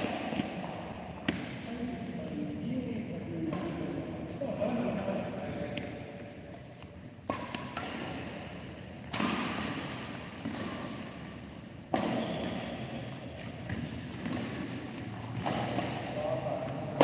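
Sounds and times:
badminton racket hitting shuttlecock: 0:07.2 - 0:16.2.

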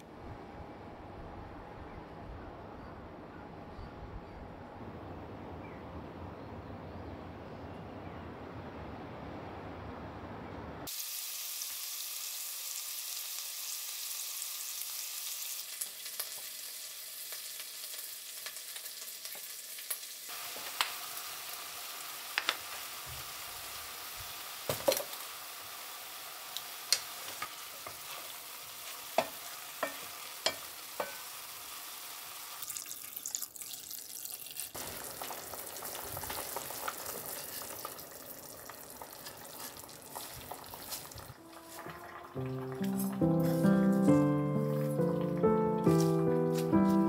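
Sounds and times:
food sizzling in a pot: 0:10.9 - 0:47.0.

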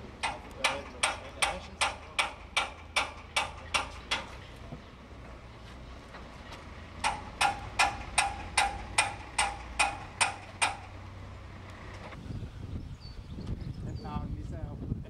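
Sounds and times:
hammer striking metal: 0:00.2 - 0:04.4, 0:07.0 - 0:10.9.

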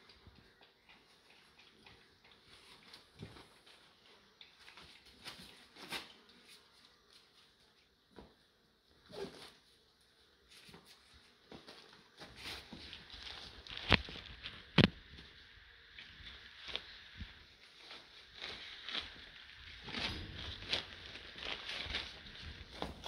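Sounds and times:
puppies scuffling on concrete: 0:10.4 - 0:15.4, 0:16.0 - 0:23.0.

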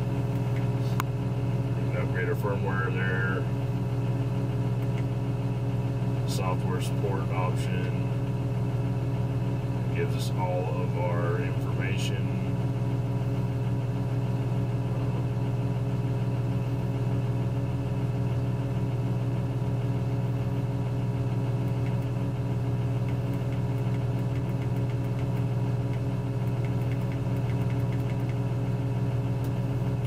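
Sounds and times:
diesel engine idling: 0:00.0 - 0:30.0.

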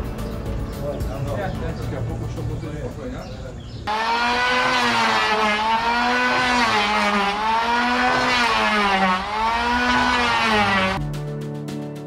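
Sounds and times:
band saw cutting wood: 0:03.9 - 0:11.0.

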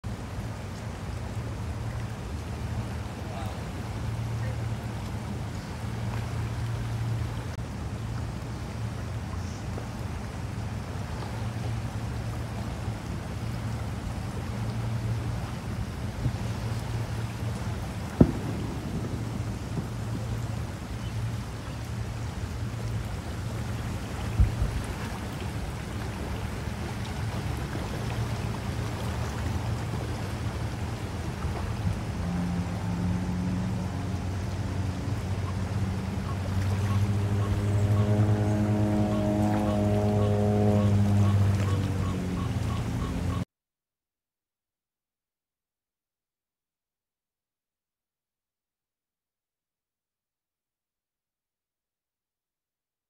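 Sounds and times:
floodwater rushing: 0:00.0 - 0:43.4
faint rain ticks: 0:00.1 - 0:32.7
low hum: 0:17.2 - 0:24.6, 0:26.3 - 0:43.3.

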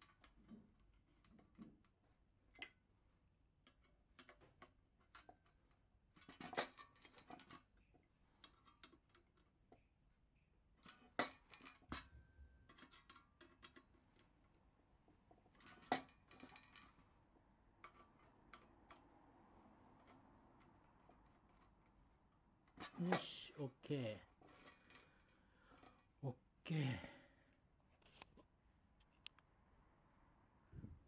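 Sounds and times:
metal parts clicking and tapping: 0:03.6 - 0:09.9, 0:10.8 - 0:14.6.

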